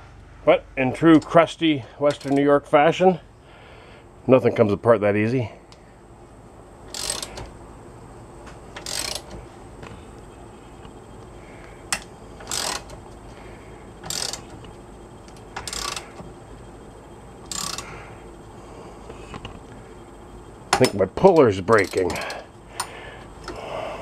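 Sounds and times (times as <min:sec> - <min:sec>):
socket ratchet clicking: 0:06.9 - 0:07.6, 0:08.7 - 0:09.4, 0:11.9 - 0:13.0, 0:14.0 - 0:14.7, 0:15.3 - 0:16.2, 0:17.5 - 0:17.9, 0:20.8 - 0:23.6.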